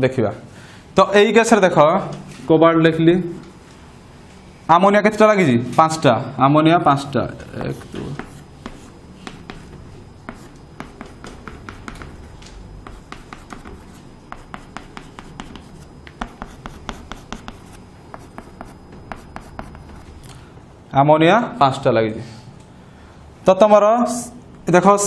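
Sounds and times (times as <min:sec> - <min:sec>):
chalk tapping and scratching: 0:07.4 - 0:20.2.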